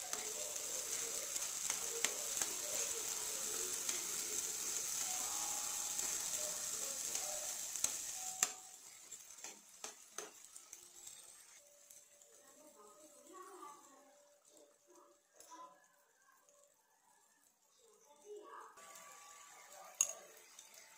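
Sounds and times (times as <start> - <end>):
vegetables sizzling in oil: 0.0 - 20.9
spatula scraping pan: 8.8 - 12.7.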